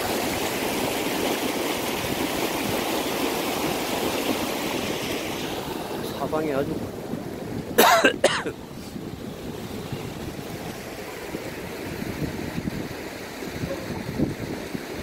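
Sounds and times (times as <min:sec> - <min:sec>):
wind noise on microphone: 0:00.0 - 0:15.0
person coughing: 0:07.8 - 0:08.6.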